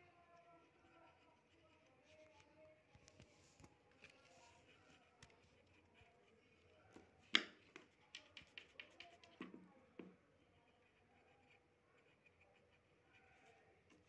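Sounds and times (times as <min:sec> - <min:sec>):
pencil scratching on paper: 0:00.2 - 0:09.5, 0:10.3 - 0:14.0.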